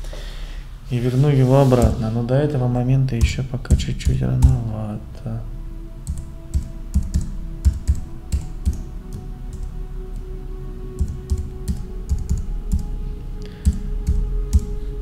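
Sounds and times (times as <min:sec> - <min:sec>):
typing on computer keyboard: 0:06.1 - 0:08.8, 0:11.0 - 0:12.8.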